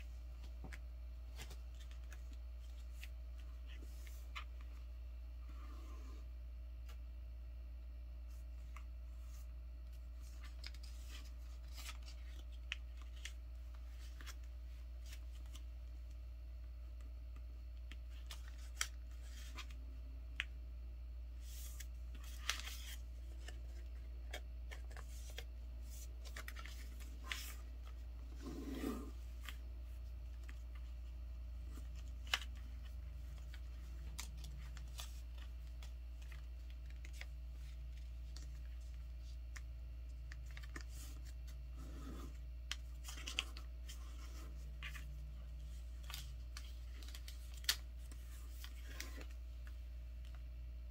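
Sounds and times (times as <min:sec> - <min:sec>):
steady low hum: 0:00.0 - 0:50.9
paper rustling and crinkling: 0:00.4 - 0:04.9, 0:08.3 - 0:16.0, 0:21.4 - 0:50.5
paper crackle: 0:09.9 - 0:15.7, 0:21.4 - 0:50.5.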